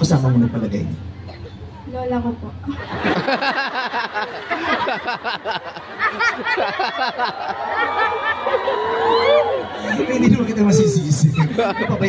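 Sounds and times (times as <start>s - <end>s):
large audience laughing: 2.6s - 12.0s
burst of rhythmic laughter: 2.7s - 8.8s.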